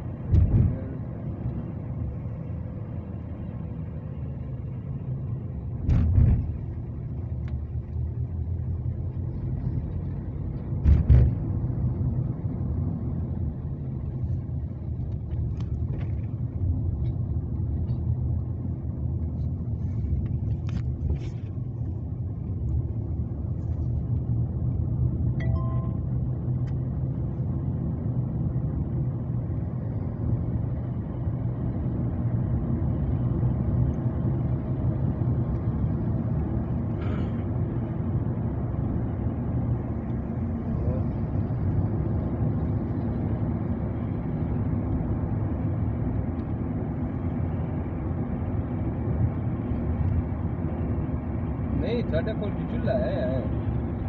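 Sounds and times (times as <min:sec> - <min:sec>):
vehicle rumble from inside: 0:00.0 - 0:54.0
loud thuds: 0:00.2 - 0:00.8.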